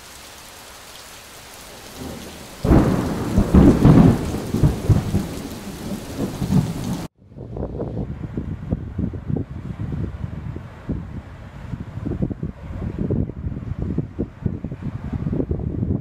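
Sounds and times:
rain hiss: 0.0s - 7.1s
thunder clap and rumble: 1.8s - 16.0s.

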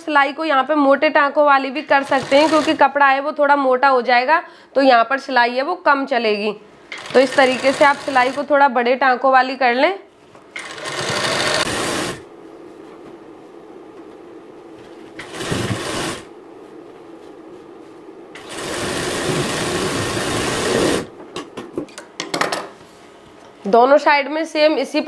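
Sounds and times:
sewing machine stitching: 1.9s - 2.9s, 6.9s - 8.5s, 10.5s - 12.2s, 15.2s - 16.3s, 18.4s - 21.1s.

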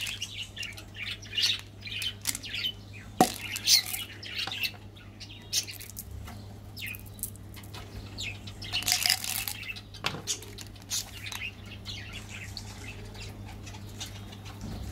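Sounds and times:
candy wrappers rustling: 0.0s - 0.3s, 1.4s - 2.5s, 8.8s - 9.6s
small birds chirping: 0.0s - 14.9s.

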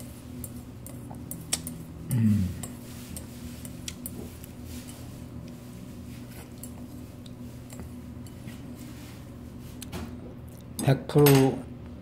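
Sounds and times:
steady low hum: 0.0s - 12.0s
chopsticks clicking on porcelain bowl: 0.4s - 1.8s.

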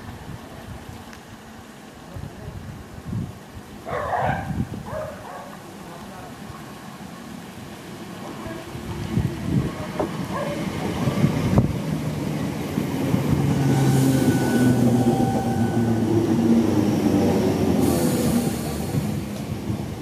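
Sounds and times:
electric train humming drone: 6.6s - 20.0s.

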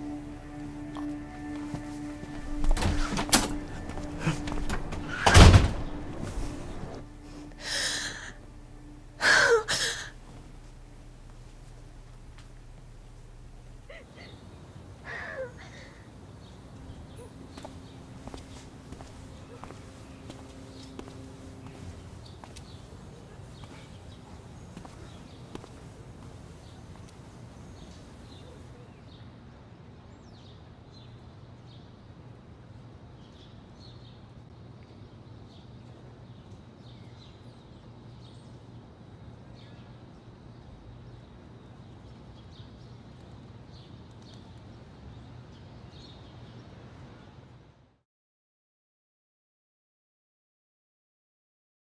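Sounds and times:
footsteps: 0.0s - 15.9s, 16.5s - 28.4s
low rumble: 0.0s - 28.3s
small birds chirping: 10.8s - 29.2s.

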